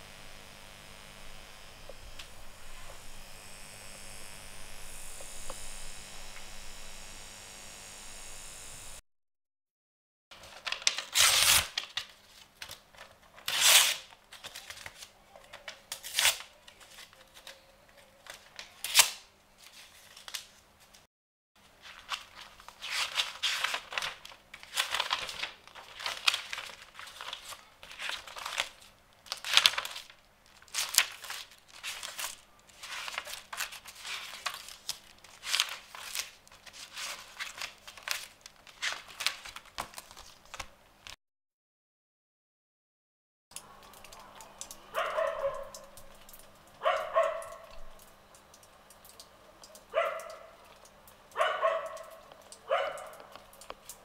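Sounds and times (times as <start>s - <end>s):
paper tearing: 1.2s - 3.2s, 10.5s - 17.6s, 18.2s - 20.5s, 21.8s - 41.2s
book pages turning: 1.9s - 3.0s, 10.4s - 20.5s, 21.8s - 41.2s.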